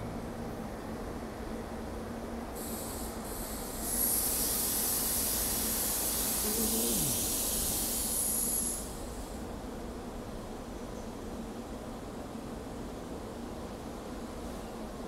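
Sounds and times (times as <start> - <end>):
high-pitched hiss: 2.6 - 9.4.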